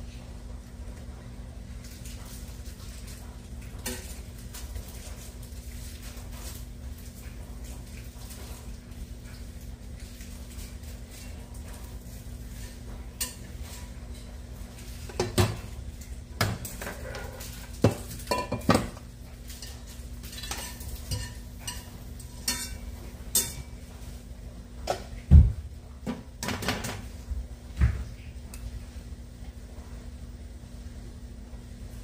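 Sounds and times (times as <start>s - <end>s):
steady low hum: 0.0s - 32.0s
metal utensil clinking on pans: 3.8s - 4.3s, 12.6s - 14.3s, 16.5s - 23.8s.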